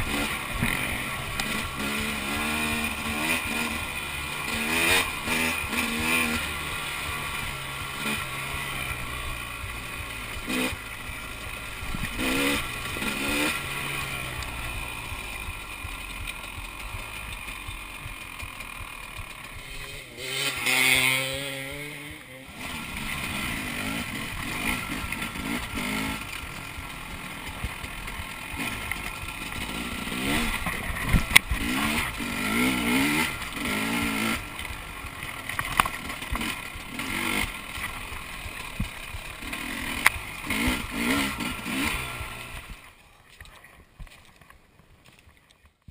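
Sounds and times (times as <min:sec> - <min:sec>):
motorcycle engine revving: 0:00.0 - 0:45.7.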